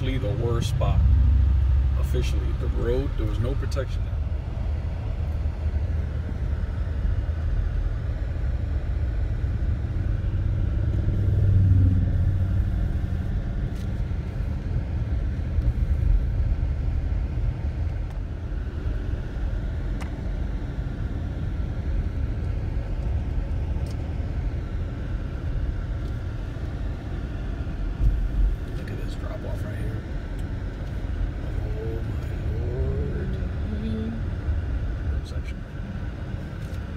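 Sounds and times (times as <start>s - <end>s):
car engine and tyres rumbling: 0.0s - 36.9s.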